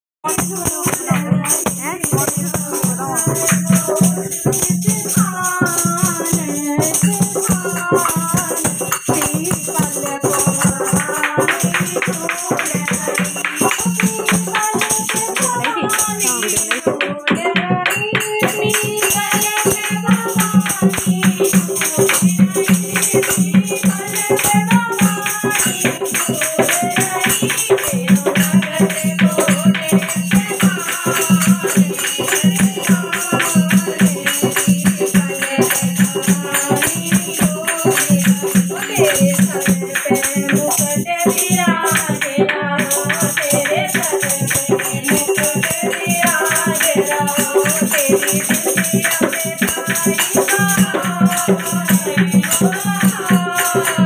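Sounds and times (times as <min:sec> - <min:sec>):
hand drum beat: 0:00.2 - 0:54.0
jingling percussion: 0:00.2 - 0:54.0
women singing devotional song: 0:00.3 - 0:54.0
people clapping: 0:10.2 - 0:17.6.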